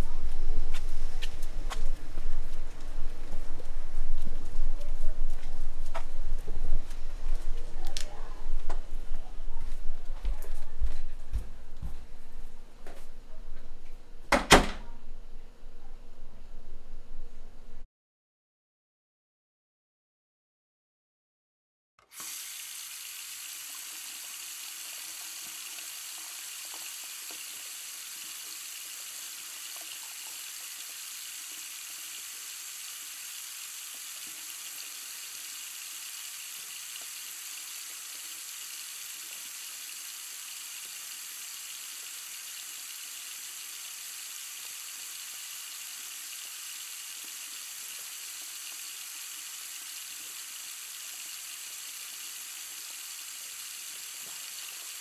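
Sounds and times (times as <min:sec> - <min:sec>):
tap water running into sink: 0:22.1 - 0:31.0.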